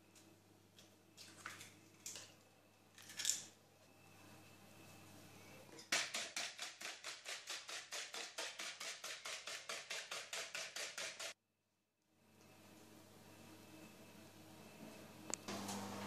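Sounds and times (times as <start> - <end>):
wire whisk beating eggs: 5.9 - 11.4.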